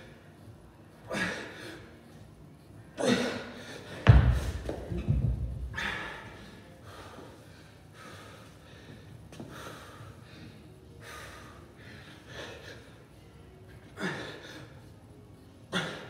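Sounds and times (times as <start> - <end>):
man breathing hard: 5.6 - 13.1.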